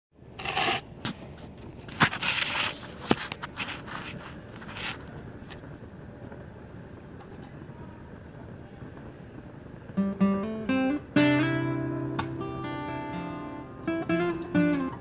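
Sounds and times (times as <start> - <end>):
faint hiss: 0.2 - 15.0
rustling and scraping handling noise: 0.4 - 7.6.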